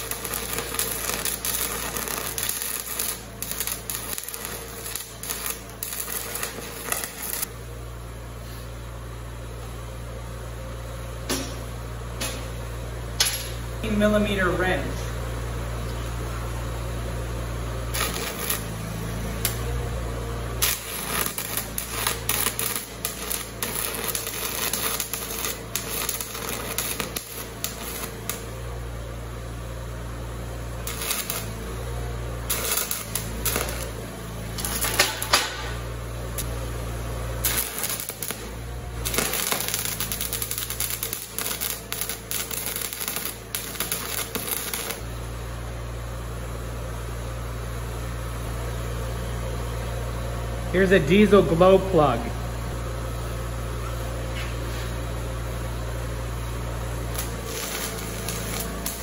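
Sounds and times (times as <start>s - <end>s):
welding arc crackling and popping: 0.0s - 7.6s, 17.6s - 29.3s, 30.3s - 45.3s, 55.3s - 59.0s
steady low hum: 0.0s - 59.0s.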